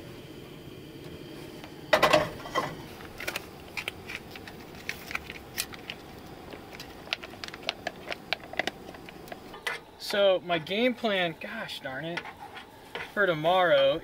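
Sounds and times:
package crinkling: 3.0s - 9.5s.

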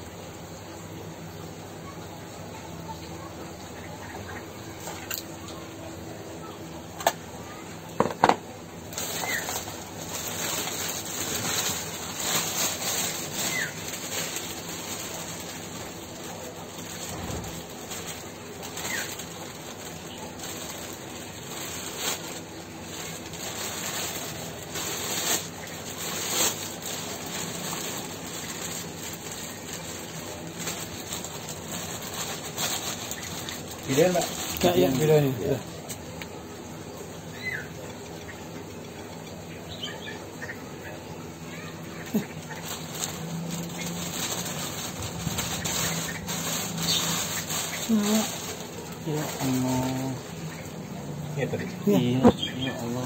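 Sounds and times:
plastic bag crinkling: 7.0s - 37.1s, 41.3s - 53.0s.

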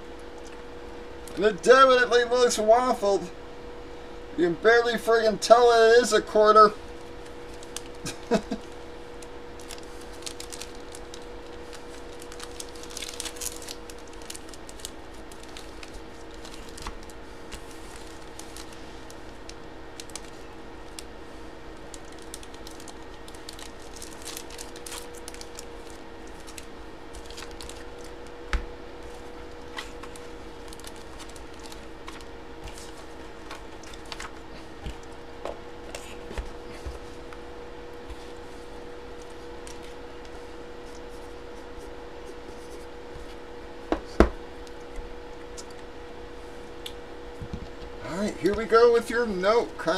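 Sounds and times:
low electrical hum: 0.0s - 49.9s
plastic packaging rustling: 6.9s - 35.2s.

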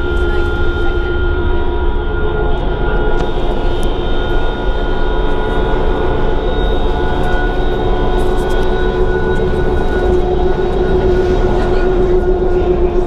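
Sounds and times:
bus engine drone: 0.0s - 13.0s
constant whine: 0.0s - 13.0s
low rumble: 0.0s - 13.0s.

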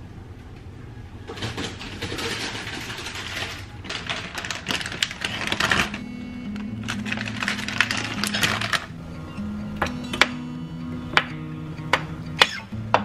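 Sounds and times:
plastic packets crinkling: 1.4s - 8.9s.

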